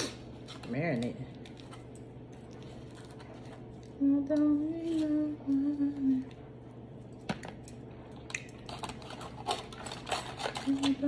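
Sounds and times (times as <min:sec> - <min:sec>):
woman humming: 0:04.0 - 0:06.4.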